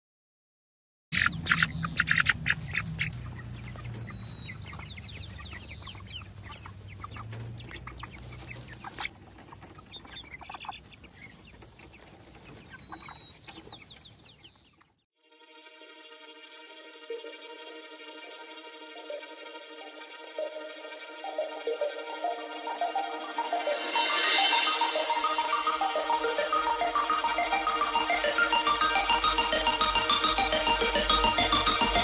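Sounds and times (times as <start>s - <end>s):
chickens clucking: 1.2s - 15.0s.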